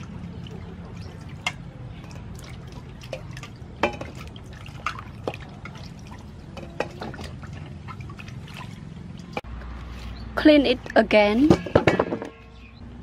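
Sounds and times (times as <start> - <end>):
water splashing and dripping: 0.0 - 10.1.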